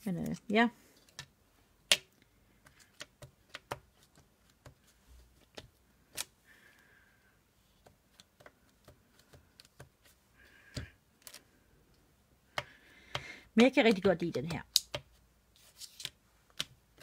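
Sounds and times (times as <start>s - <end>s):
rubber stamps clicking and tapping: 1.9s - 4.8s, 12.5s - 15.2s.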